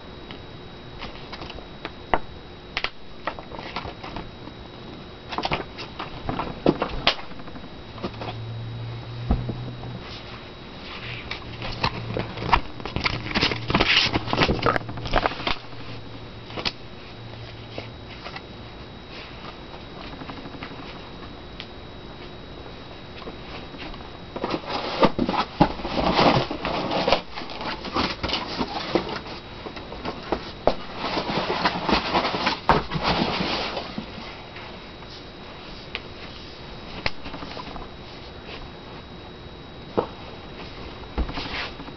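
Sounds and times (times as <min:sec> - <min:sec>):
low hum: 0:00.0 - 0:41.9
cardboard rustling and scraping: 0:03.2 - 0:04.4, 0:09.3 - 0:21.2, 0:23.2 - 0:39.1, 0:40.0 - 0:41.9.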